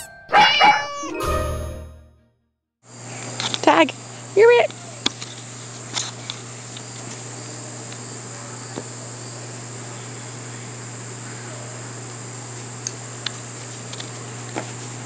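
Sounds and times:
insects chirring: 2.9s - 14.5s.

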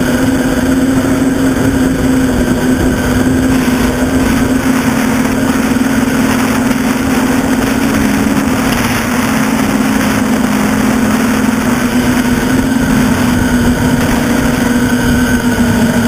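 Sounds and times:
quadcopter motors buzzing: 0.0s - 16.0s.

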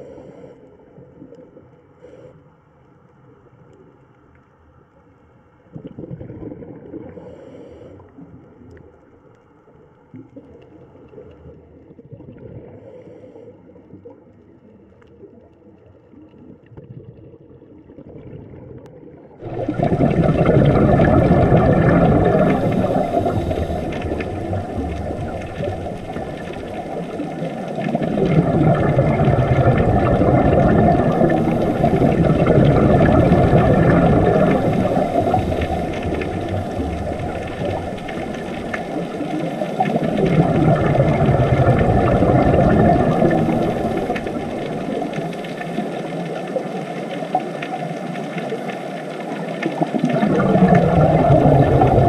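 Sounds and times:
diver's exhaled air bubbling: 5.8s - 8.4s, 16.8s - 52.0s
low underwater rumble: 13.9s - 52.0s.

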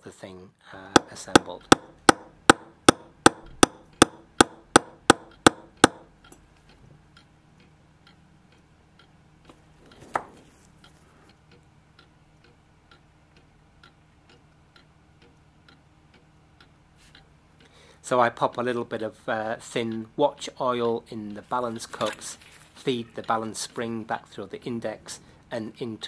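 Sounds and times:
loud knock: 1.0s - 6.1s
clock ticking: 1.0s - 9.6s, 10.8s - 22.0s, 23.0s - 26.0s.

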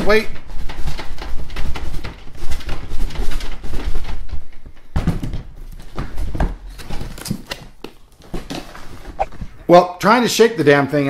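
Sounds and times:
heavy thumps: 0.4s - 9.8s
knocks and rustles in box: 0.8s - 9.6s.

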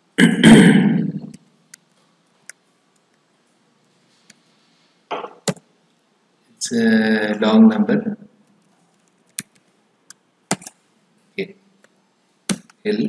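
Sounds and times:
keyboard key clicks: 10.5s - 10.8s.

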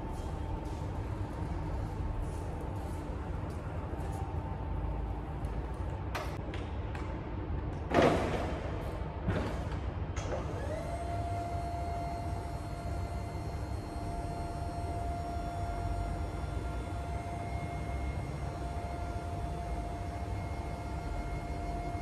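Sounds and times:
hydraulic pump whine: 10.2s - 22.0s.

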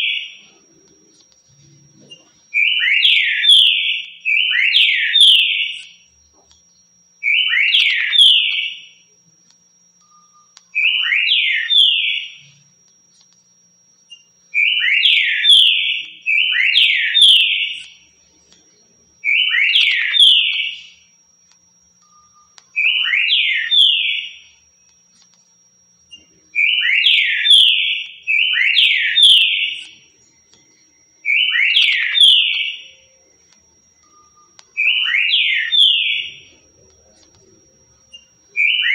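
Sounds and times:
bird whistling song: 2.1s - 6.0s, 26.1s - 30.0s, 31.2s - 33.0s, 34.0s - 36.4s.

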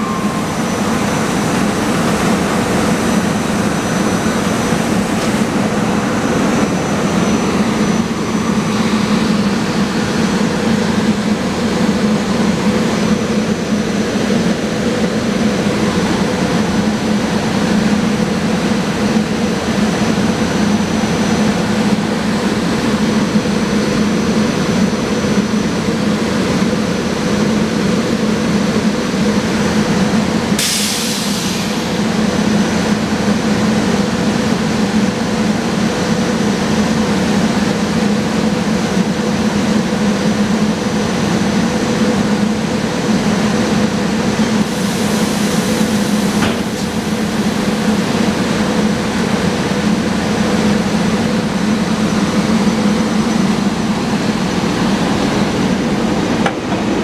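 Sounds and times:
faint high whine: 0.0s - 11.4s
train equipment humming: 0.0s - 57.0s
burst of hiss: 30.6s - 32.1s, 44.6s - 47.3s.

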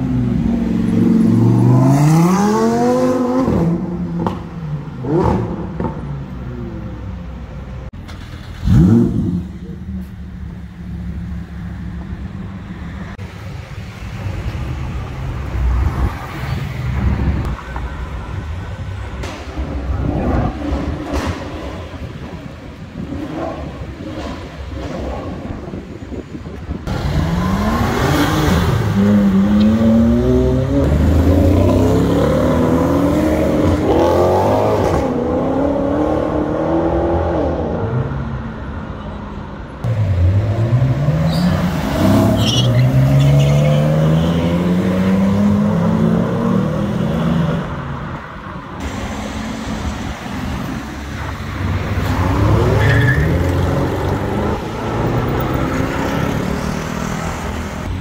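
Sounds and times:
cars accelerating with loud exhausts: 8.2s - 12.0s, 19.2s - 38.4s, 39.8s - 58.0s.

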